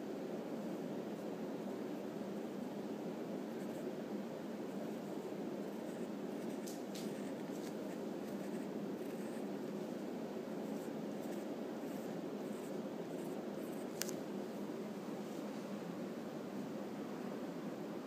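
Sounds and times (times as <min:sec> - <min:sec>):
pencil sketching on paper: 0:04.7 - 0:14.0.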